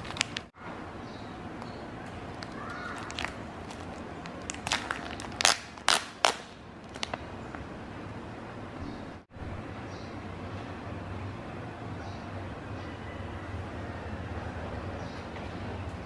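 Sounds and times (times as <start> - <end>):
plastic wrapper crinkling: 0.0 - 0.5, 2.4 - 7.2.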